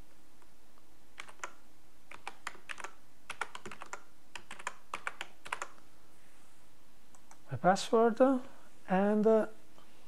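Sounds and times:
typing on computer keyboard: 1.2 - 5.8.

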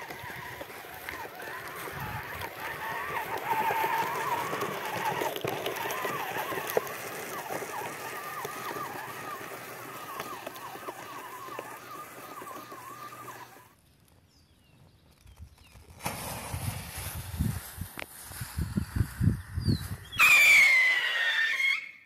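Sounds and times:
small gear motors whining: 0.0 - 13.8.

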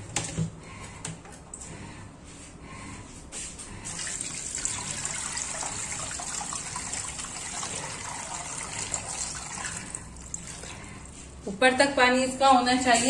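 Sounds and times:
water pouring into pot: 3.9 - 10.8.

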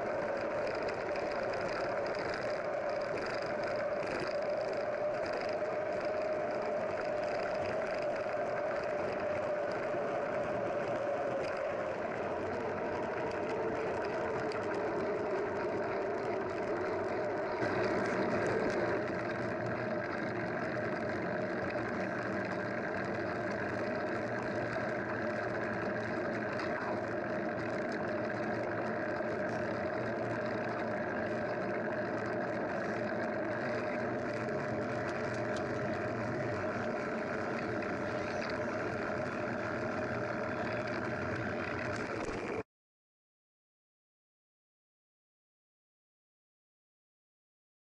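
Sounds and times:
engine running: 0.0 - 42.6.

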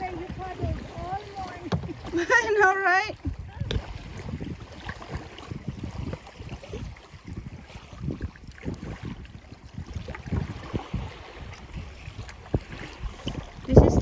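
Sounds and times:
water splashing against kayak hull: 0.0 - 14.0
wind buffeting microphone: 0.0 - 14.0.

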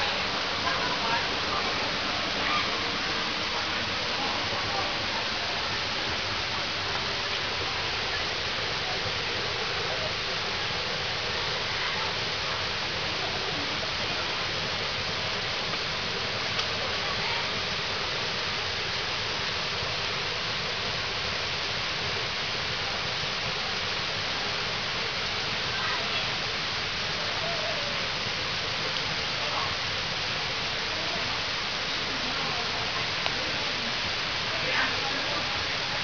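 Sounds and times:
steady rushing noise: 0.0 - 27.0.

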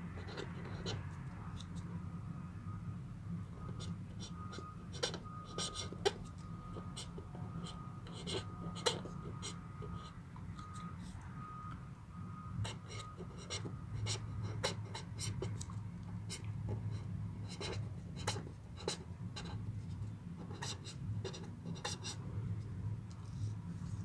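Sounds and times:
steady low hum: 0.0 - 24.0
marker scratching on paper: 0.2 - 1.8, 3.6 - 10.2, 12.6 - 22.2.

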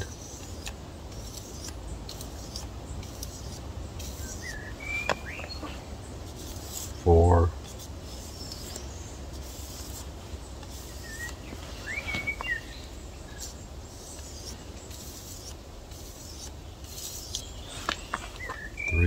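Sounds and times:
knife scraping on sandpaper: 0.0 - 7.0, 7.6 - 18.7
bird chirps: 4.1 - 5.9, 10.8 - 15.0, 16.3 - 19.0.

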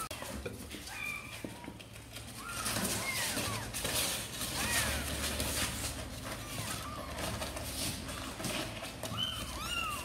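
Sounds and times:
kittens mewing: 0.8 - 10.0.

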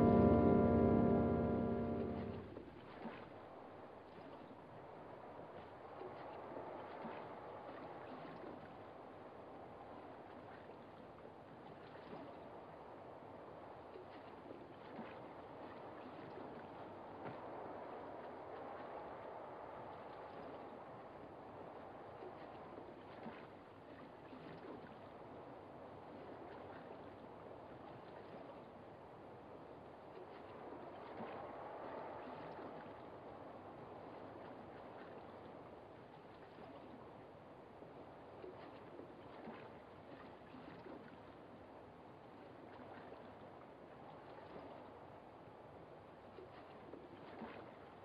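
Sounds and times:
film soundtrack hiss: 0.0 - 2.6
water lapping at shore: 0.0 - 48.0.

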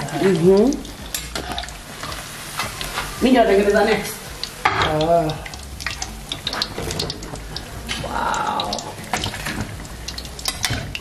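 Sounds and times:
oil sizzling: 0.0 - 11.0
metal ladle clicking on pan: 4.4 - 11.0.

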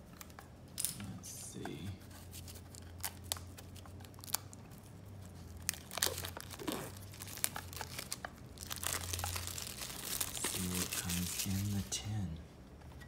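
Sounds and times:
plastic wrapping crinkling: 2.4 - 12.0.

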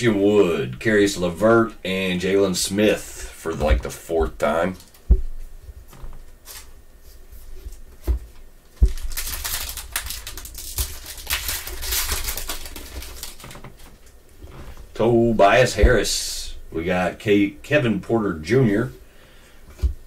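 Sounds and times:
foil wrapper crinkling and tearing: 8.8 - 14.1.

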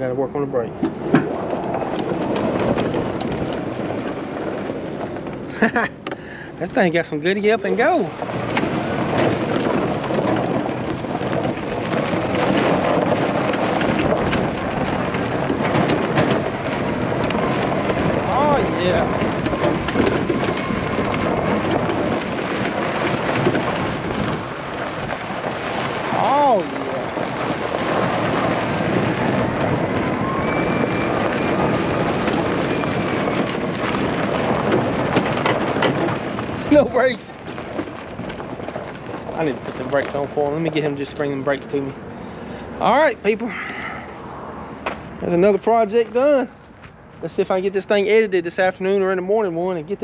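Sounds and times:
wind noise on microphone: 0.0 - 50.0
tyres crunching on gravel: 0.5 - 50.0
small clicks and rattles: 7.5 - 30.0, 31.1 - 42.0.

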